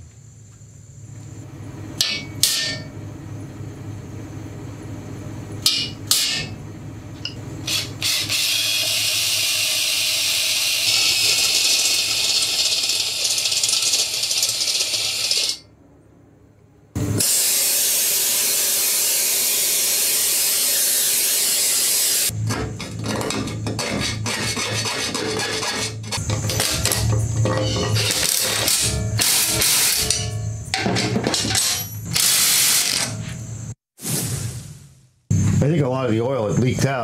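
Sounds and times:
power drill boring through metal: 0:07.7 - 0:15.6, 0:17.2 - 0:22.3.

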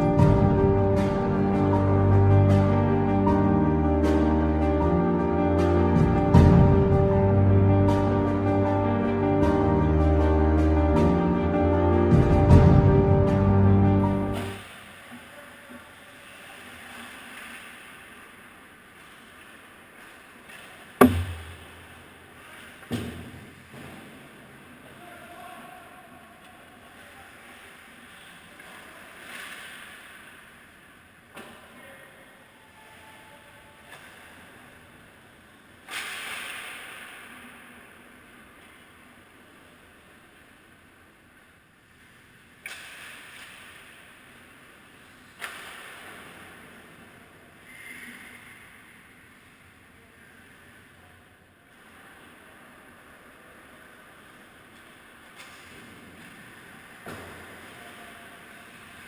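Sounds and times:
sharp knock of hockey stick: 0:21.0 - 0:21.8.

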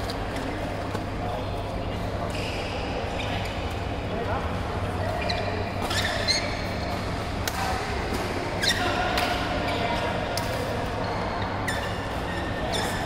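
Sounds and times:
short squeak: 0:05.2 - 0:06.6, 0:11.6 - 0:13.0.

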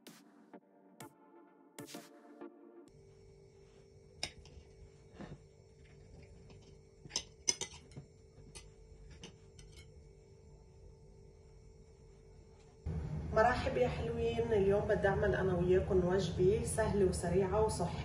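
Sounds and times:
electronic intro music: 0:00.0 - 0:02.9
cutlery clinking on a plate: 0:07.1 - 0:09.9.

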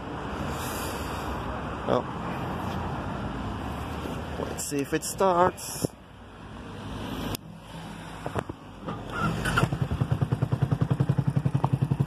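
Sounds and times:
motorcycle engine starting and idling: 0:08.8 - 0:12.0.

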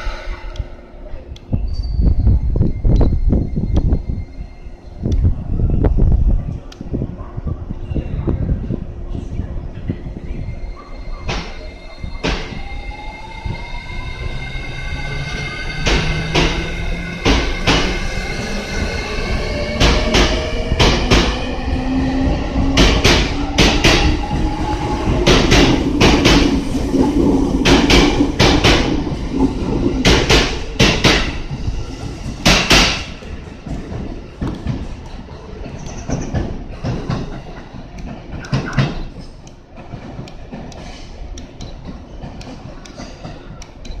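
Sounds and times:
train wheels clicking over rail joints: 0:15.0 - 0:21.5, 0:22.6 - 0:44.0.

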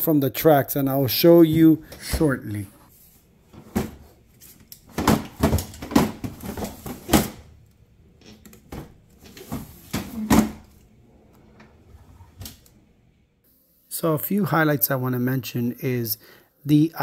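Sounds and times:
plastic knocks and rattles: 0:04.9 - 0:07.5.

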